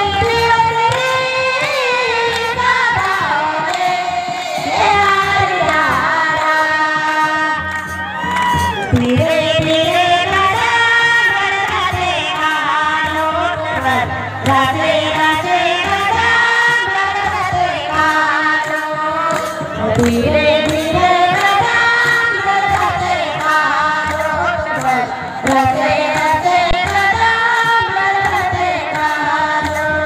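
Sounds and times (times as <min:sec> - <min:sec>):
woman singing into a microphone: 0:00.0 - 0:30.0
women singing together: 0:00.0 - 0:30.0.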